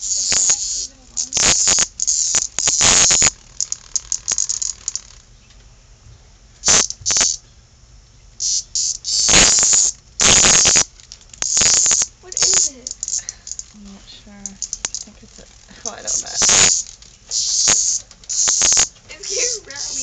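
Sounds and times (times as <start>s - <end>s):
cicada buzzing harshly: 0.0s - 20.0s.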